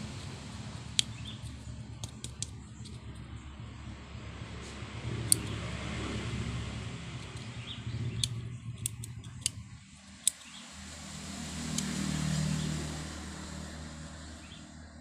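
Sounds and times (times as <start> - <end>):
low background drone: 0.0 - 15.0.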